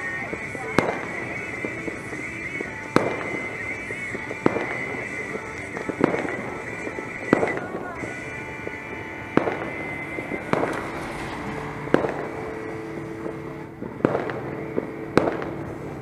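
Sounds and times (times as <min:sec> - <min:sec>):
fireworks bangs: 0:00.0 - 0:15.9.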